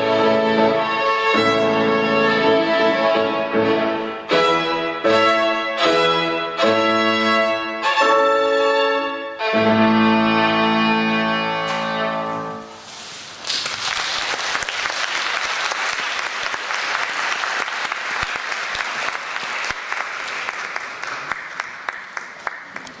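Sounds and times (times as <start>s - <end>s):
violin and piano chord: 0.0s - 12.7s
audience applause: 13.4s - 23.0s.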